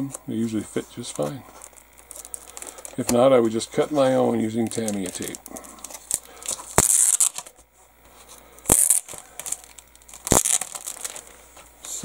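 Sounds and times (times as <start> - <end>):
plastic bag rustling: 3.7 - 7.5, 8.8 - 11.6.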